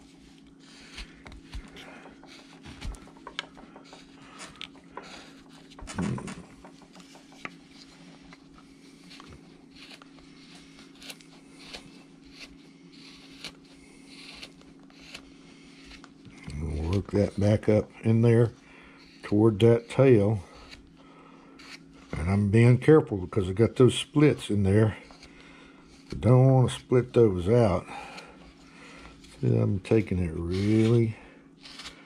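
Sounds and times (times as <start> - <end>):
gouge scraping wood: 0.0 - 32.0
steady low hum: 0.0 - 32.0.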